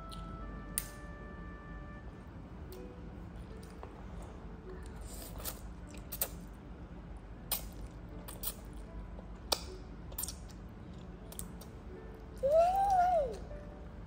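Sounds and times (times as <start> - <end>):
low steady hum: 0.0 - 14.0
toddler slurping and chewing: 4.8 - 6.5.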